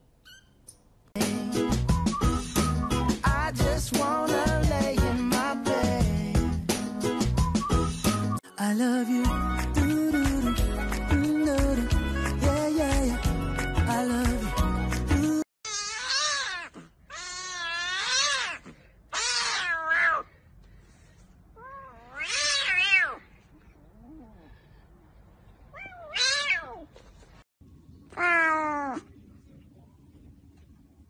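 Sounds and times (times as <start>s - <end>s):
cat meowing: 15.7s - 20.3s, 21.6s - 23.2s, 25.7s - 26.9s, 28.1s - 29.1s
kitten meowing: 21.6s - 23.2s, 25.8s - 26.8s.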